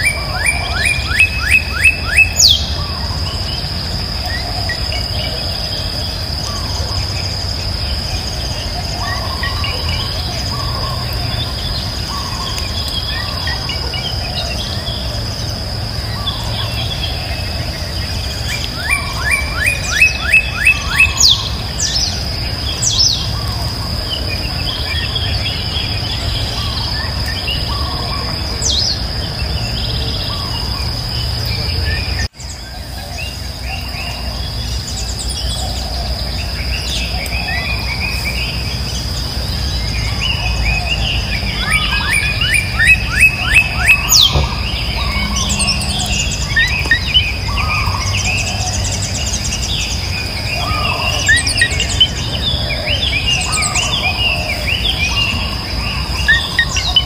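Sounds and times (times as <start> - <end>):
birds chirping: 0.0 - 57.0
insect drone: 0.0 - 57.0.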